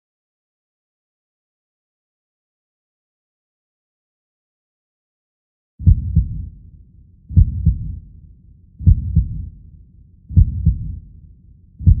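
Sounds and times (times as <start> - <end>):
heartbeat double thump: 5.8 - 6.5, 7.3 - 8.0, 8.8 - 9.5, 10.3 - 11.0.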